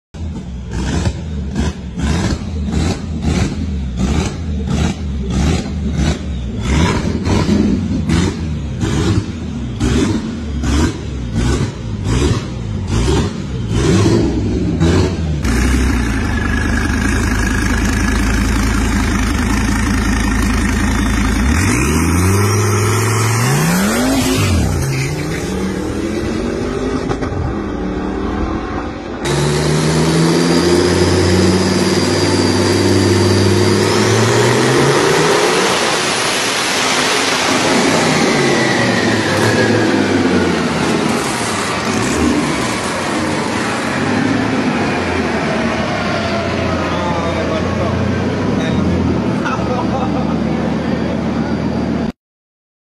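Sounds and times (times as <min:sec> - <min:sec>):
exhaust popping: 0:00.2 - 0:27.5
car engine revving: 0:00.2 - 0:52.1
car accelerating hard: 0:00.7 - 0:51.1.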